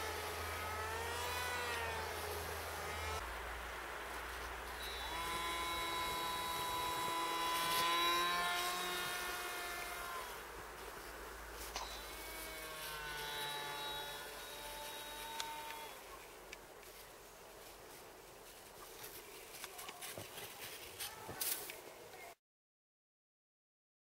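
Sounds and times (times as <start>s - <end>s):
model plane motor whining: 0.0s - 3.2s, 4.7s - 10.4s, 11.8s - 16.1s.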